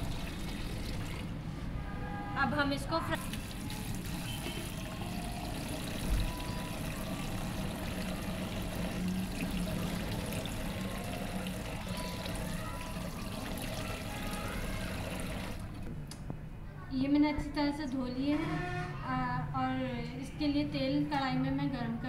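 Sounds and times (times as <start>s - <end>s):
tap water pouring into a steel bowl: 3.2s - 15.8s.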